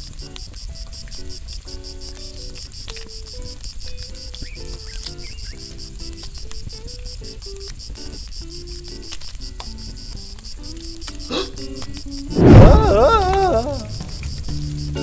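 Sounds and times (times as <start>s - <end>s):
crickets chirping: 0.0s - 15.0s
shifting low tones: 12.2s - 14.8s.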